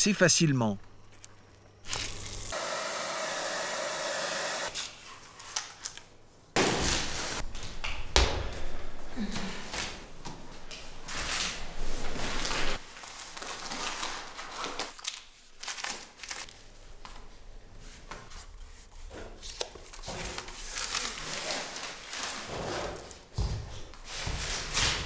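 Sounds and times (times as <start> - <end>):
paper film peeling and crinkling: 12.3 - 16.6, 19.5 - 23.1.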